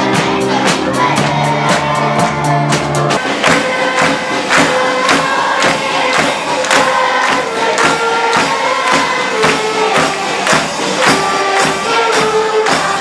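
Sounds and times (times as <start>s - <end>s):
children's choir singing: 0.0s - 13.0s
drum beat: 0.0s - 13.0s
school orchestra playing: 3.2s - 13.0s.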